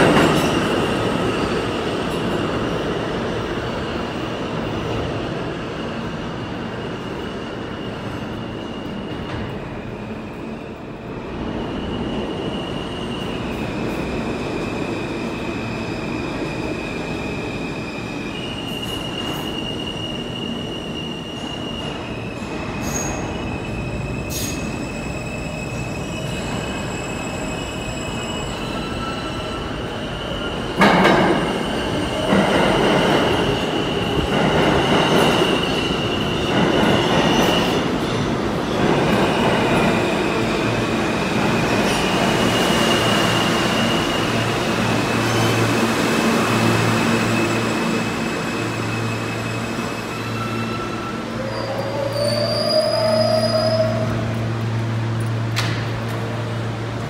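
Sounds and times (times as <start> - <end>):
steel wheels squealing: 18.1 - 37.9, 46.7 - 54.2.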